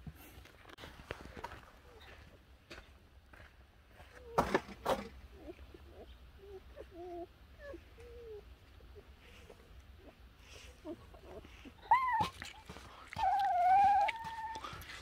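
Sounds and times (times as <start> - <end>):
puppies squeaking and whimpering: 5.3 - 15.0
puppy crying: 5.4 - 9.1, 10.8 - 14.7.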